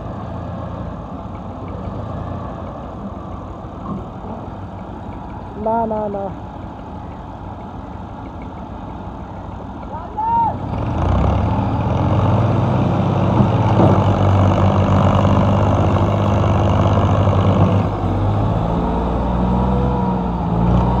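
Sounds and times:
second tractor engine running: 0.0s - 21.0s
tractor diesel engine labouring: 0.0s - 21.0s.

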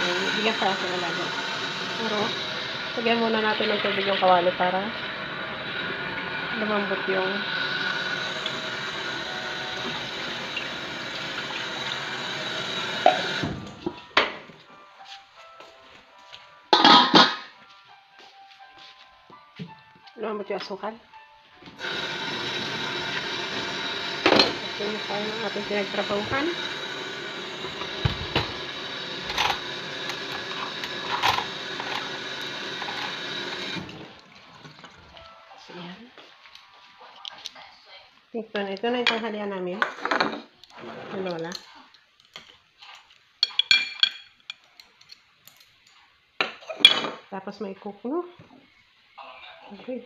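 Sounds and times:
water running into a wok: 0.0s - 14.0s, 21.8s - 35.2s
kitchen utensils clinking: 16.7s - 17.5s, 21.8s - 34.0s, 43.4s - 45.8s, 46.4s - 47.3s.

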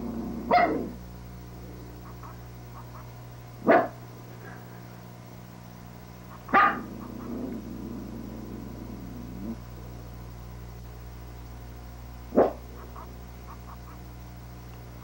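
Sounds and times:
puppy growling: 0.0s - 1.0s, 6.5s - 9.6s
puppy barking: 0.5s - 0.9s, 3.6s - 4.0s, 6.4s - 7.2s, 12.3s - 13.1s.

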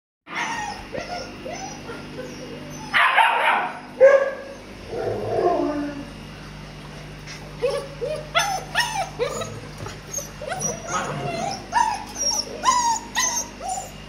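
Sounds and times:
puppy yelping: 0.3s - 4.6s, 7.3s - 14.0s
puppies yipping and whimpering: 0.3s - 4.7s, 7.1s - 14.0s.

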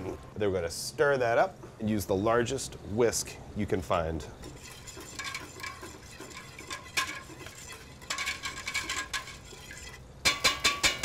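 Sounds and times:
whisk clinking against metal pot: 4.4s - 11.0s.

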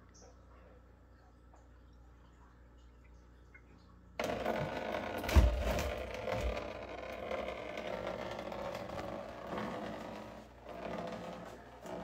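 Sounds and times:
fountain pump running: 4.2s - 12.0s.

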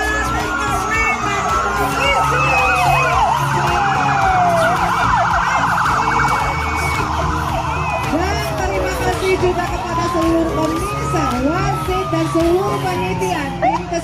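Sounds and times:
motorcycle engines humming: 0.0s - 14.0s
police sirens wailing and yelping: 0.0s - 14.0s.

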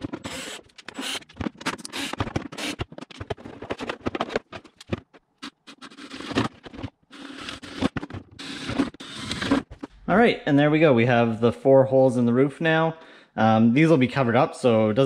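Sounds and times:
drill boring through plastic: 0.0s - 2.9s, 5.4s - 9.7s.

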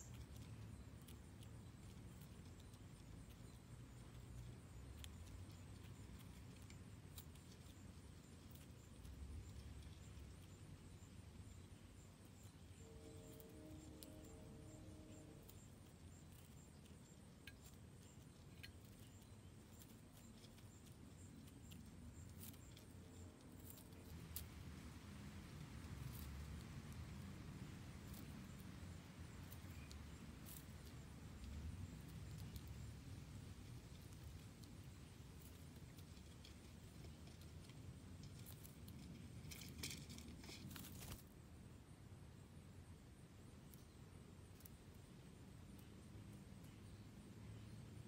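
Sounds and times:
faint low outdoor rumble: 0.0s - 48.0s
soft ticks: 16.2s - 24.5s
bird rustling in dry leaves: 22.4s - 41.3s.

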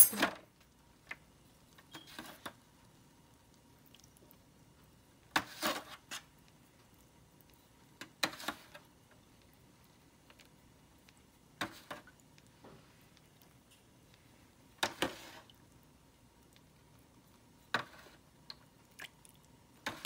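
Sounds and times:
spoon scraping foil pan: 5.4s - 6.2s.

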